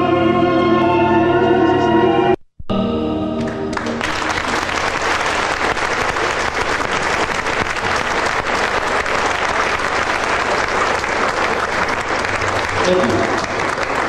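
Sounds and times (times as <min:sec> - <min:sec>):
music: 0:00.0 - 0:04.6
audience applauding: 0:03.4 - 0:14.0.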